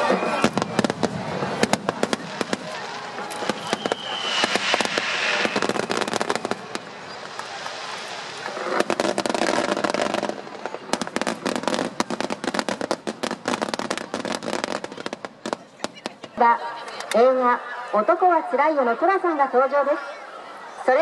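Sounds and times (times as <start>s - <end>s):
fireworks bangs and crackling: 0.0s - 16.6s.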